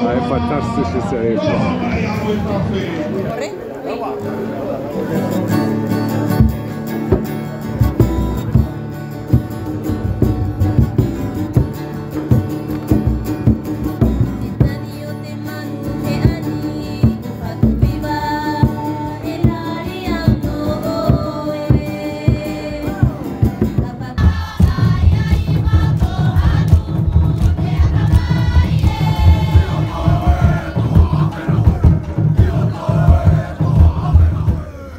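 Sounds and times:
regular drum beats: 0:06.2 - 0:34.9
group singing: 0:14.0 - 0:34.9.

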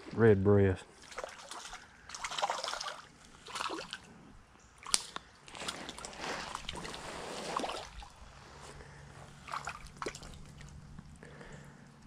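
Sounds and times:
fish splashing in water: 0:01.0 - 0:04.1, 0:04.8 - 0:08.3, 0:09.3 - 0:11.0.

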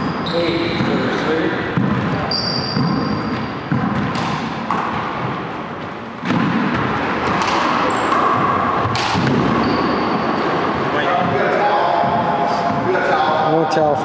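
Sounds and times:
rubber ball knocking with echo: 0:00.7 - 0:05.4, 0:06.2 - 0:09.6.

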